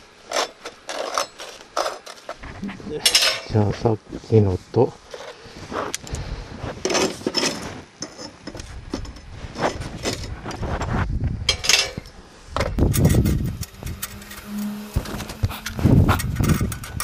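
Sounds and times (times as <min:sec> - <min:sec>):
metal clinks and scrapes: 0:00.2 - 0:03.7, 0:06.8 - 0:10.7, 0:11.5 - 0:12.1, 0:12.8 - 0:17.0.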